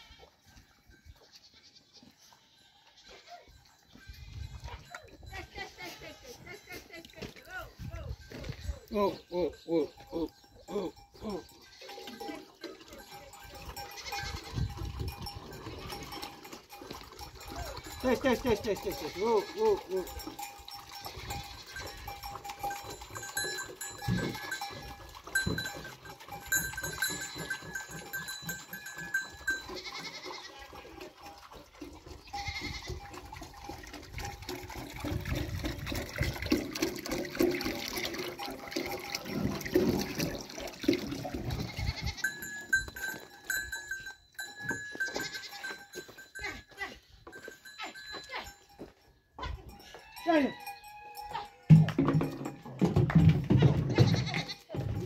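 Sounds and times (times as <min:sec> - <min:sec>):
goats drinking: 0:00.0 - 0:49.0, 0:49.6 - 0:55.0
knocks on metal trough: 0:51.7 - 0:54.3.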